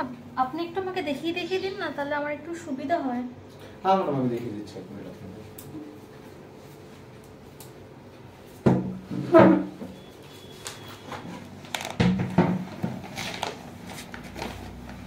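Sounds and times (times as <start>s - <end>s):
plastic chair scraping on tiles: 9.0s - 9.8s
plastic chair creaking: 10.5s - 15.0s.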